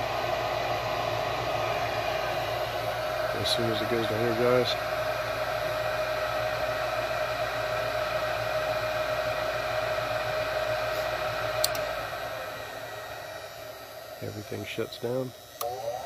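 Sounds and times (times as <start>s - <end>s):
furnace motor whirring: 0.0s - 16.0s
sharp click: 11.6s - 11.9s.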